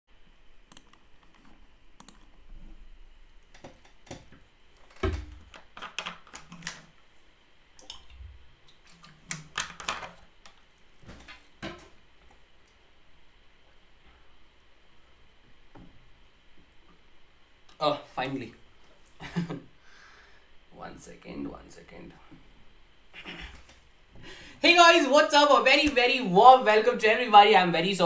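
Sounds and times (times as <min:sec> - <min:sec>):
mouse clicks: 0:00.7 - 0:02.3.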